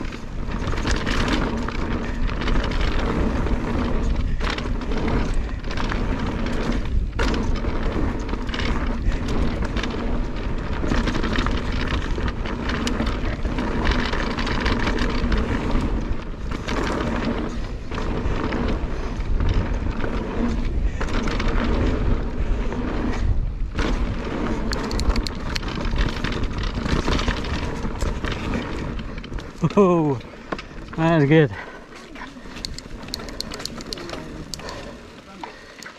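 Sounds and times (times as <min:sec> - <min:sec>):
wind buffeting microphone: 0:00.0 - 0:35.8
bike tyres crunching on gravel: 0:00.0 - 0:35.9.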